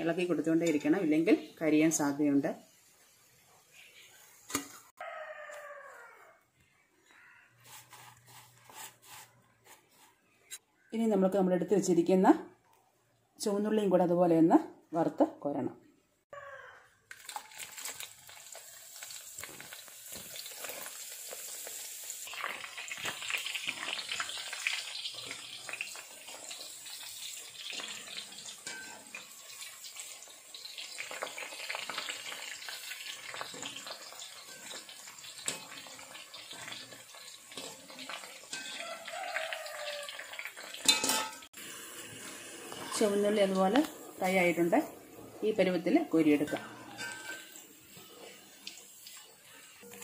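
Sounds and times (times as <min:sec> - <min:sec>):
onions sizzling in hot oil: 0:00.0 - 0:04.9, 0:17.2 - 0:50.0.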